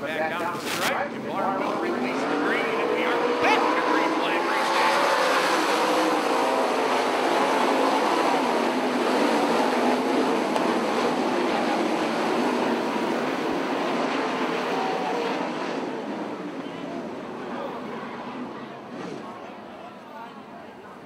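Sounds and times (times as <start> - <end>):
racing car engines: 0.0 - 21.0.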